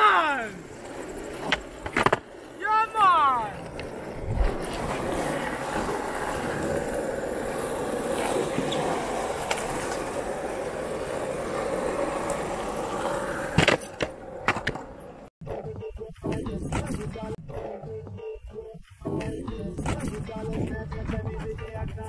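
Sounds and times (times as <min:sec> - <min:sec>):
skateboard wheels rolling on asphalt: 0:00.0 - 0:15.3.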